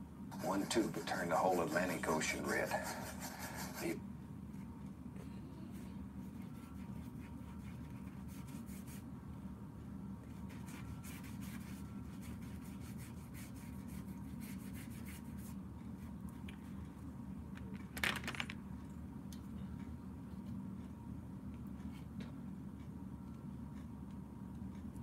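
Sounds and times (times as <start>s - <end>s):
brush scrubbing on paper: 0.3s - 4.0s, 6.3s - 9.0s, 10.4s - 15.6s
handling noise: 17.6s - 18.6s.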